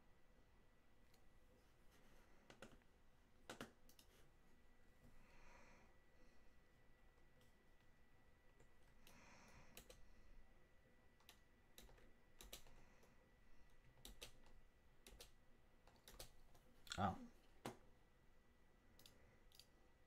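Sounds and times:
keyboard and mouse clicks: 0:02.4 - 0:04.2, 0:08.6 - 0:10.0, 0:11.2 - 0:13.1, 0:13.7 - 0:17.0, 0:19.0 - 0:19.8.

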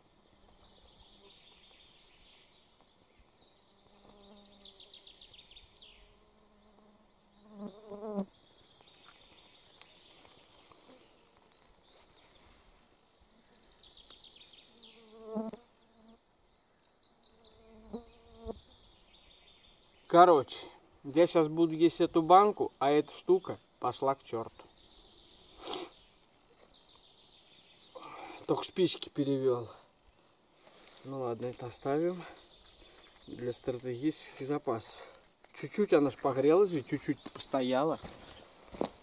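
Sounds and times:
flies buzzing: 0:03.5 - 0:08.4, 0:14.6 - 0:16.3, 0:17.1 - 0:18.7.

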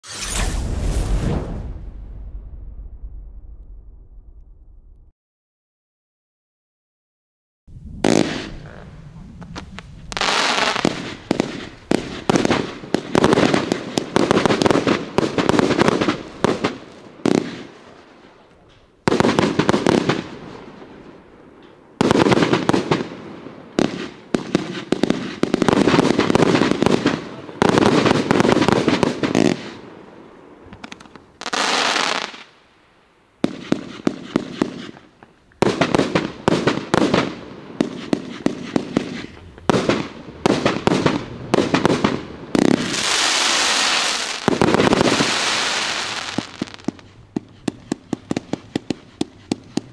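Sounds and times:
firework barrage shots: 0:00.0 - 0:04.6, 0:07.8 - 0:17.9, 0:19.1 - 0:20.9, 0:22.0 - 0:29.9, 0:33.4 - 0:49.9.

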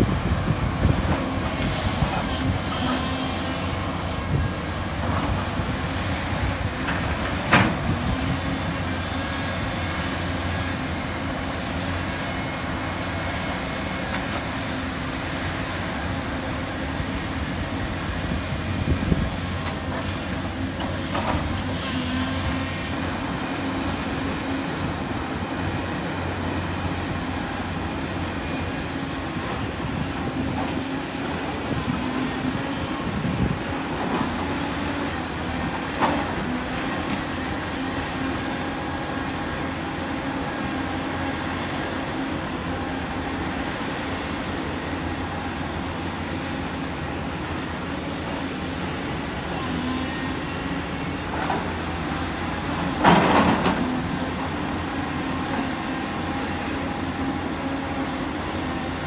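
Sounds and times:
excavator engine and hydraulics: 0:00.0 - 0:59.0.

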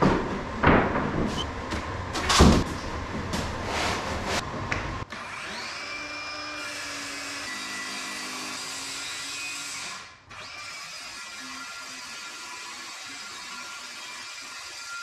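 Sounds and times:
circular saw cutting plywood: 0:05.2 - 0:15.0.

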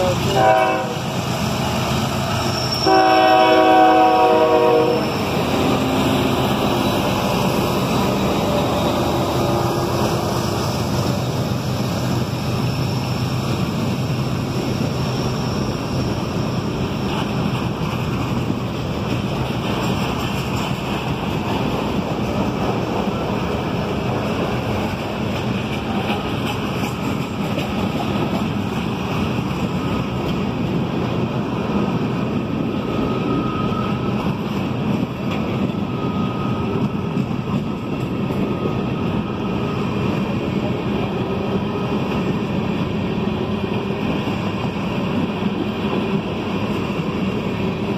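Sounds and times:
locomotive air horn: 0:00.0 - 0:01.1, 0:02.5 - 0:06.0
freight cars rumbling on rails: 0:00.0 - 0:47.9.

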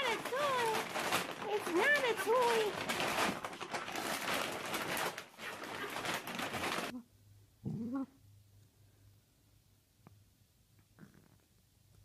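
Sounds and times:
plastic bag rustling: 0:00.0 - 0:07.0
dog whining: 0:07.6 - 0:08.2.

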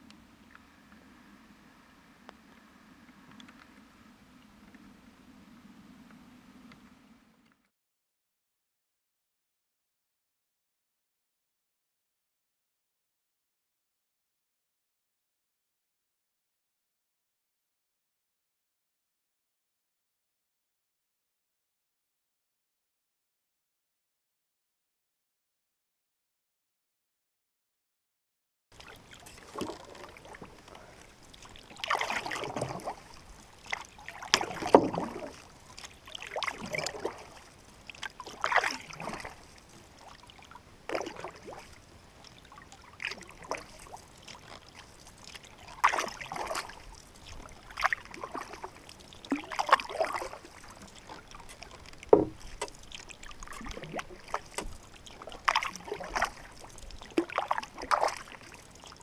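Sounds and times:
paddle splashing in water: 0:28.8 - 0:59.0.

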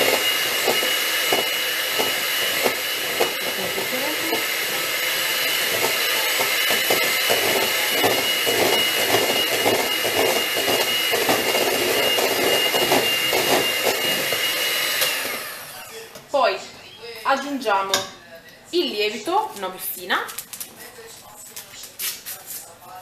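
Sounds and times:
hand mixer motor whine: 0:00.0 - 0:16.1.

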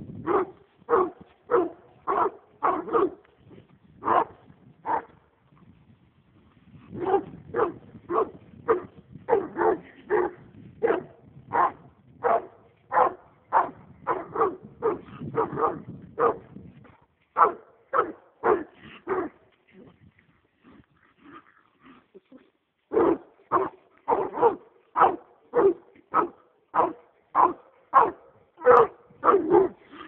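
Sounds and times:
dog barking: 0:00.3 - 0:03.2, 0:04.0 - 0:05.1, 0:07.0 - 0:16.4, 0:17.4 - 0:19.4, 0:22.9 - 0:30.0.

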